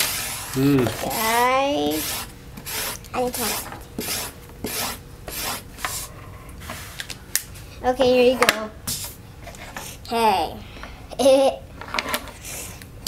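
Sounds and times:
marker scribbling on paper: 0.0 - 6.1.

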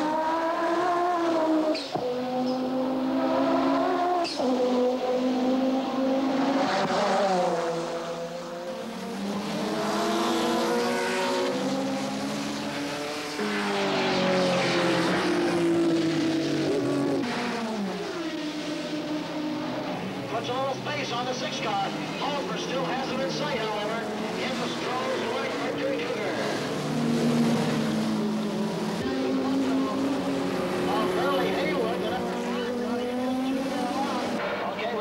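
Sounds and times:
racing car engines accelerating: 0.0 - 35.0.

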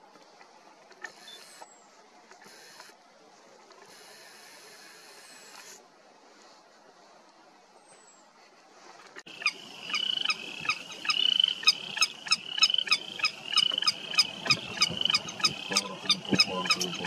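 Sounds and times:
bird calling sharp notes: 9.3 - 17.0.

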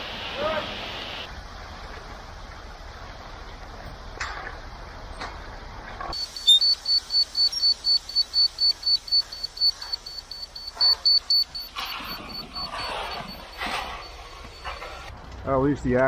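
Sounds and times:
rapid high beeps: 6.1 - 15.1.

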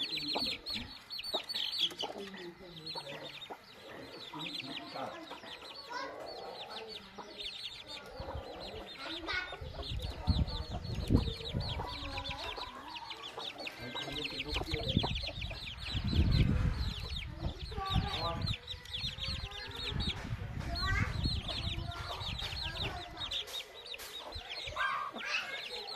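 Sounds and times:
chicks peeping: 0.0 - 25.9
hen clucking: 0.0 - 25.9
dull low thumps: 14.5 - 23.3.

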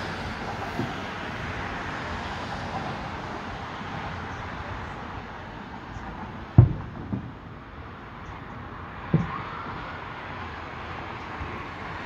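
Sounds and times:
city traffic hum: 0.0 - 12.0
distant fireworks booming: 6.5 - 7.6, 9.0 - 9.6.

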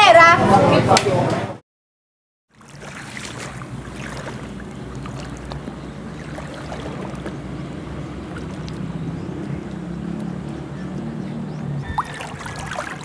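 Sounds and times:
faint splashes: 2.5 - 9.8, 11.9 - 13.0
moving water: 2.5 - 13.0
wind on microphone: 11.8 - 13.0.

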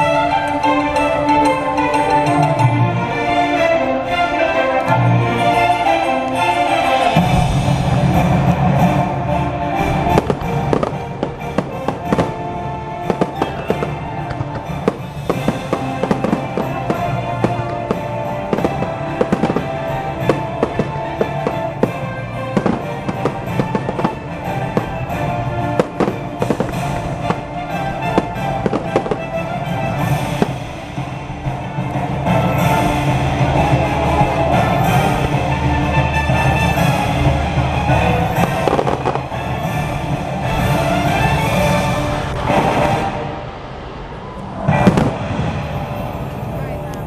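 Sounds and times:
loud show music: 0.0 - 43.8, 44.6 - 47.0
fireworks bangs and crackles: 7.0 - 47.0.

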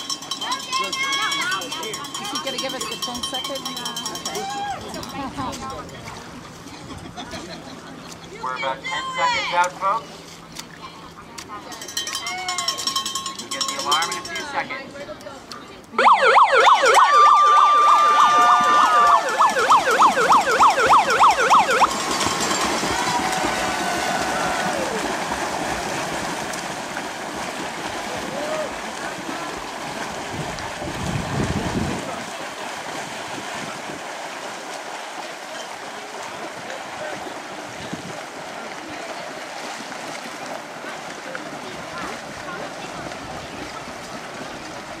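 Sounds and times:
swimmers splashing: 0.0 - 45.0
siren sweeping up and down: 16.0 - 22.0
steady high tone: 18.8 - 22.4.

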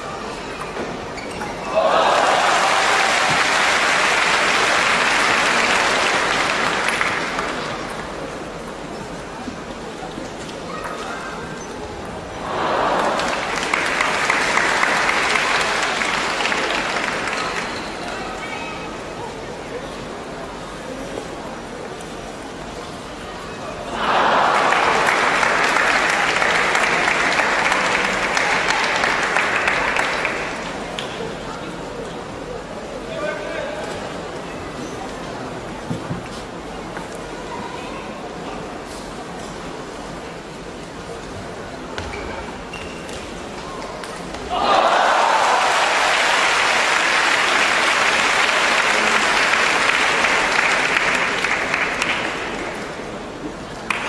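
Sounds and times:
crowd applauding: 1.8 - 7.9, 12.4 - 17.9, 24.0 - 30.7, 44.5 - 53.0.

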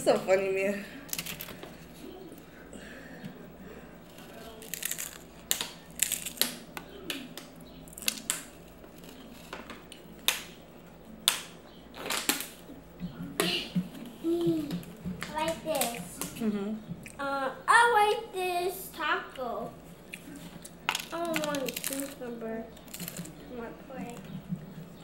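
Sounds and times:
crunching taco shell: 1.1 - 1.6, 4.1 - 10.5, 20.1 - 22.2, 22.8 - 23.4.

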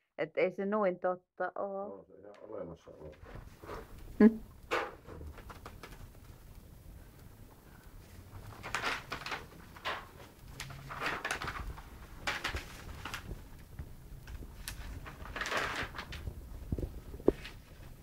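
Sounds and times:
newspaper pages rustling: 3.1 - 7.2, 8.0 - 18.0.

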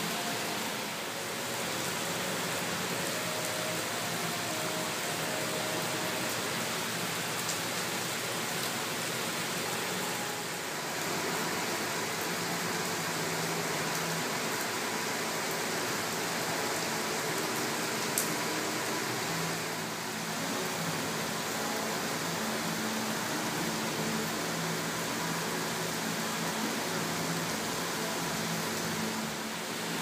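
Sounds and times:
heavy rain falling: 0.0 - 30.0.

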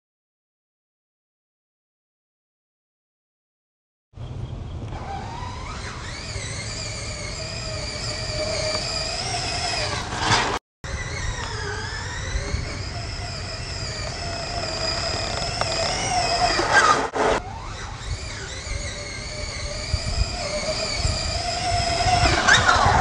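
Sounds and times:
rc car motor whining: 4.9 - 23.0.

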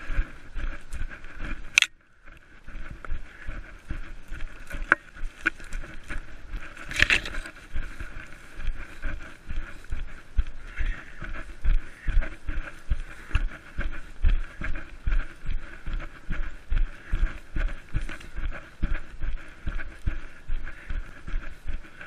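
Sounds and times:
running footsteps: 0.0 - 22.0
camera jostling: 1.6 - 2.0, 6.7 - 7.6.

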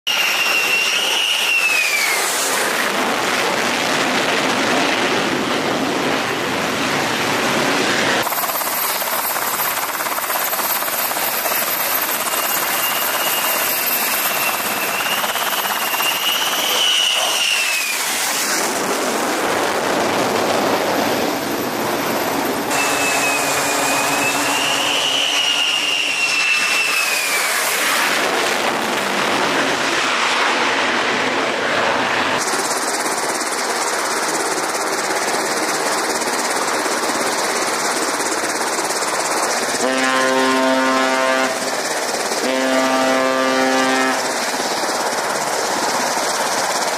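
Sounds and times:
jet engines running: 0.1 - 46.9.

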